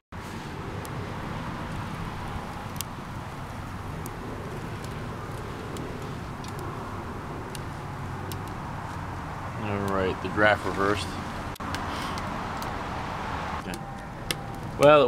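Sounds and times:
low stove rumble: 0.2s - 15.0s
wood fire crackling and popping: 0.2s - 15.0s.

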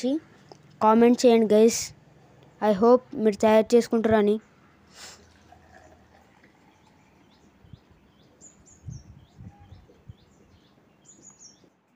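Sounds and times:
small bird chirping: 6.4s - 11.8s.

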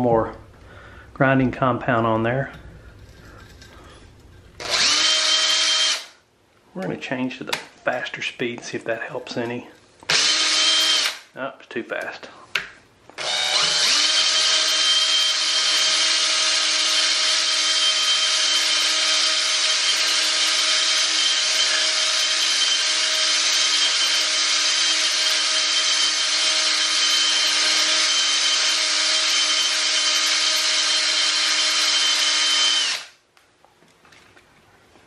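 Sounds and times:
electric drill motor whine: 4.6s - 6.1s, 10.1s - 11.2s, 13.2s - 33.1s.

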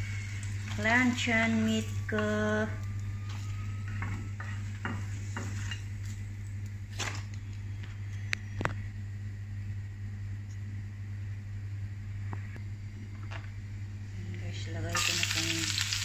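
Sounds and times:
faint sizzle of hot oil: 0.0s - 7.2s, 14.9s - 16.0s
steady low hum: 0.0s - 16.0s.

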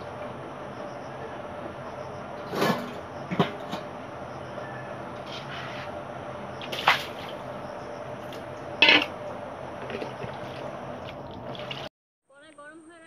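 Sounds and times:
water splashing and trickling: 5.2s - 11.9s.

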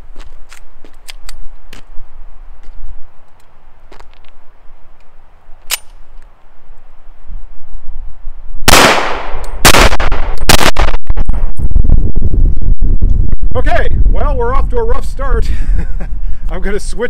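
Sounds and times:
pistol metallic click: 5.6s - 6.3s
pistol shots: 8.7s - 11.0s.

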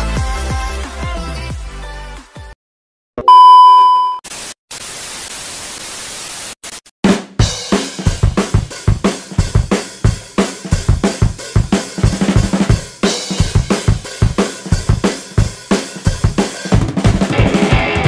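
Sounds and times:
drum kit fast beat: 7.0s - 18.0s.

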